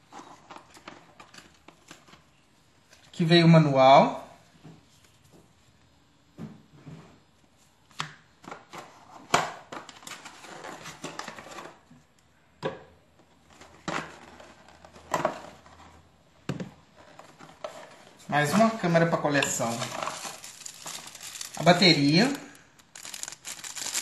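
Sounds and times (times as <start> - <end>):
cardboard and paper rustling: 8.5 - 11.9, 16.9 - 24.0
items set on table: 16.6 - 24.0.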